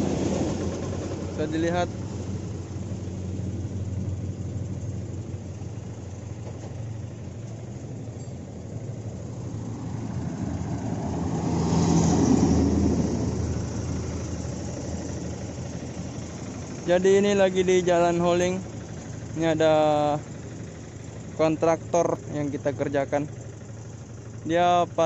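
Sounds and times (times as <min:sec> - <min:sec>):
rush of passing vehicle: 0:00.0 - 0:03.0, 0:09.3 - 0:16.7
diesel truck engine idling: 0:00.0 - 0:25.0.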